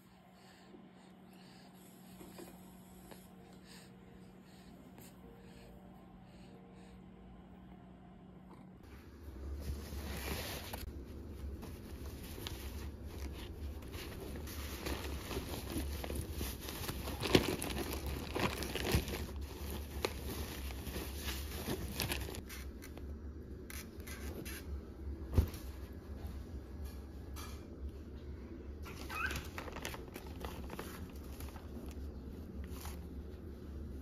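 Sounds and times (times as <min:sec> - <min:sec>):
steady low hum: 0:00.0 - 0:28.8, 0:30.0 - 0:34.0
fabric and packaging rustling: 0:08.9 - 0:22.7, 0:28.8 - 0:34.0.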